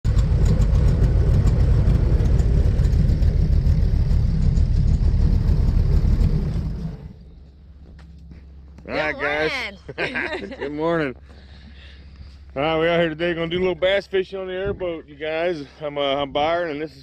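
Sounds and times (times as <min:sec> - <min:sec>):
airboat engine and propeller: 0:00.1 - 0:07.4.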